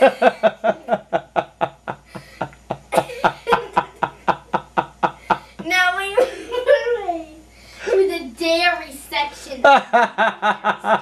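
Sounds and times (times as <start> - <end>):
person snickering: 0.0 - 5.6.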